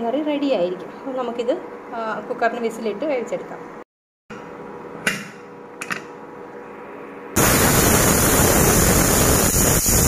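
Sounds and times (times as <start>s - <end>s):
pressure cooker whistling steam: 7.4s - 10.0s.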